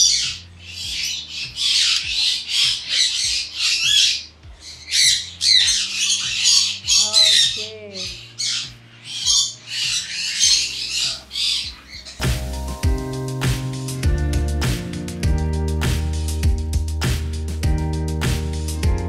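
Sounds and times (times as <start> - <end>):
parrot screeching: 0.0 - 12.2.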